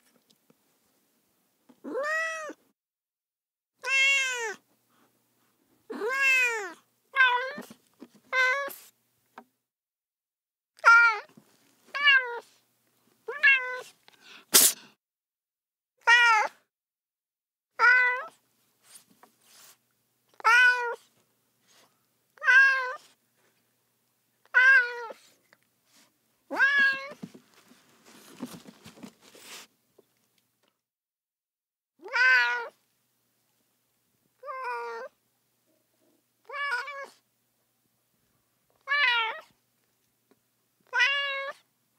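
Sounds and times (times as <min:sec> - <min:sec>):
cat meowing: 0:01.8 - 0:02.6, 0:03.8 - 0:04.6, 0:05.9 - 0:07.7, 0:12.0 - 0:12.5, 0:13.3 - 0:13.9, 0:17.8 - 0:18.3, 0:20.4 - 0:21.0, 0:22.4 - 0:23.0, 0:24.5 - 0:25.2, 0:26.5 - 0:27.2, 0:32.0 - 0:32.8, 0:34.4 - 0:35.1, 0:36.4 - 0:37.2, 0:38.8 - 0:39.5, 0:40.8 - 0:41.6.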